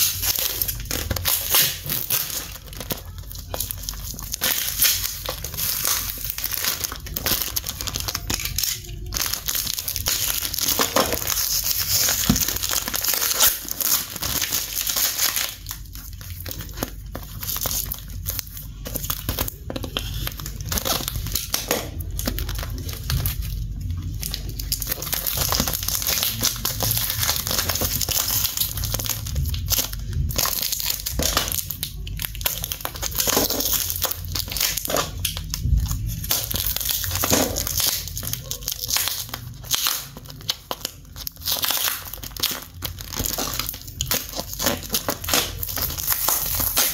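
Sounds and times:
cardboard tearing and crinkling: 0:00.0 - 0:46.9.

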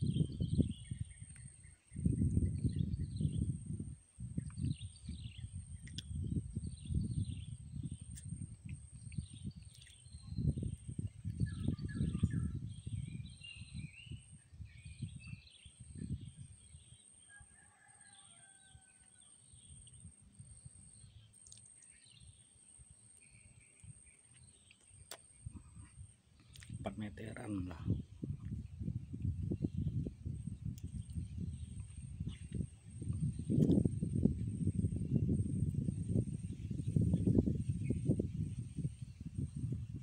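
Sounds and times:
wind buffeting microphone: 0:00.0 - 0:17.0, 0:25.4 - 0:40.0
small birds chirping: 0:00.0 - 0:17.2, 0:17.8 - 0:34.9.

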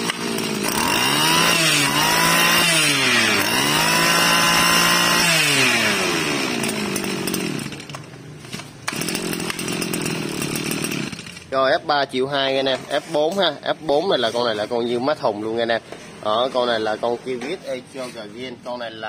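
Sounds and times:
brush cutter engine revving: 0:00.0 - 0:11.8.

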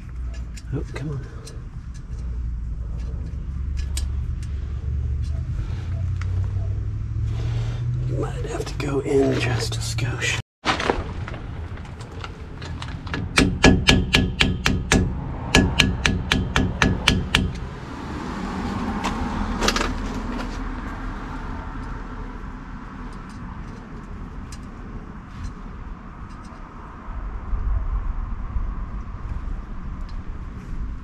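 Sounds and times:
hammer tapping on metal: 0:13.1 - 0:17.6
low rumble: 0:14.4 - 0:23.0, 0:25.0 - 0:31.0.

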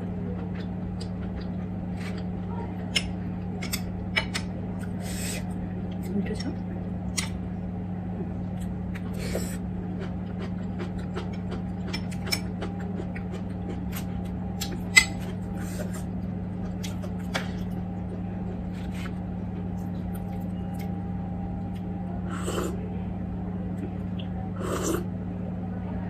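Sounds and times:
low hum: 0:00.0 - 0:26.0.

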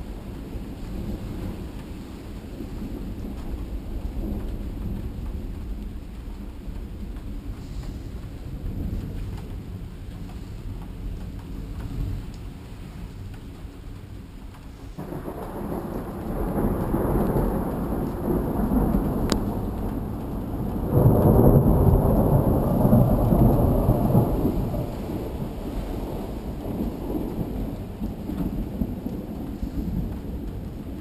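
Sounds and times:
rain hiss: 0:00.0 - 0:31.0
rolling thunder: 0:15.0 - 0:31.0.

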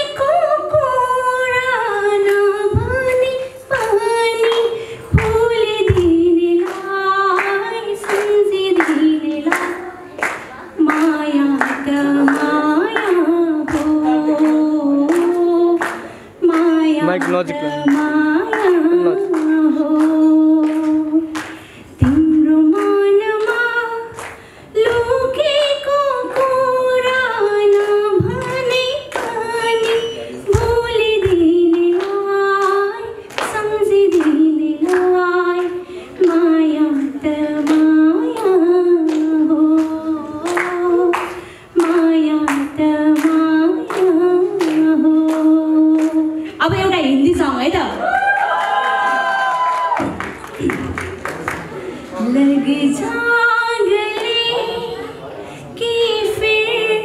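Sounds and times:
woman singing solo: 0:00.0 - 0:24.2.

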